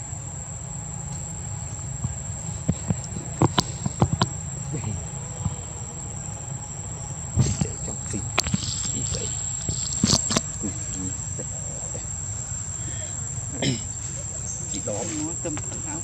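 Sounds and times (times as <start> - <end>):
high-pitched insect drone: 0.0 - 16.0.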